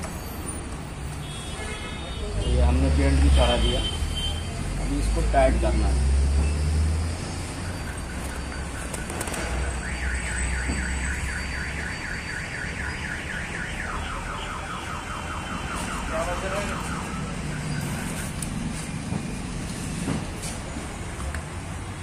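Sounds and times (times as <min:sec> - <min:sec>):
car alarm whooping: 0:07.6 - 0:18.3.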